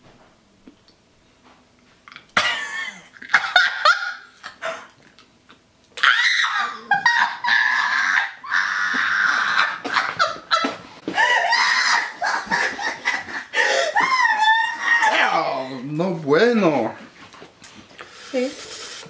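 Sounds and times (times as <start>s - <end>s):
people laughing: 2.4s - 4.9s, 6.4s - 15.3s
people screaming and shrieking: 6.0s - 10.3s, 11.1s - 12.9s, 13.6s - 15.7s.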